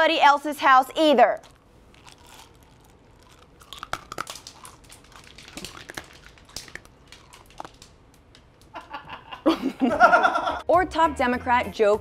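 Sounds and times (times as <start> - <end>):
tablets being crunched and chewed: 0.9 - 8.5.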